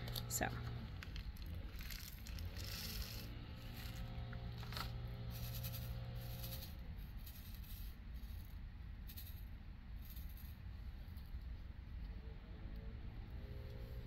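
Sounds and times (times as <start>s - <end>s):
low motor drone: 0.0s - 7.0s
plastic bag crinkling: 1.0s - 6.6s.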